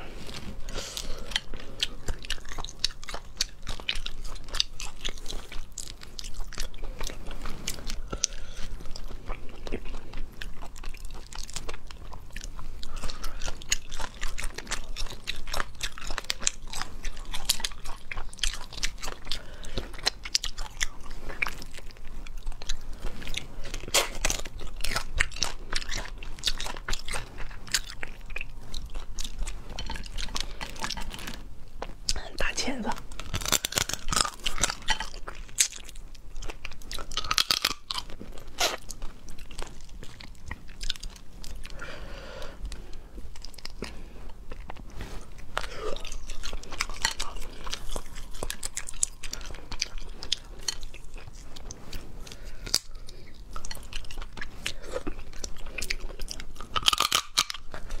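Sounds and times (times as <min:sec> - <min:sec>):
biting and chewing: 0:00.0 - 0:58.0
crayfish shells cracking: 0:33.1 - 0:35.9, 0:36.5 - 0:38.9, 0:56.4 - 0:58.0.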